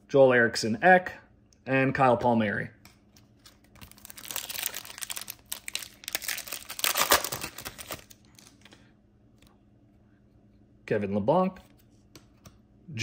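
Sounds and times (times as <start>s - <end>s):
foil wrapper crinkling and tearing: 3.4s - 8.7s.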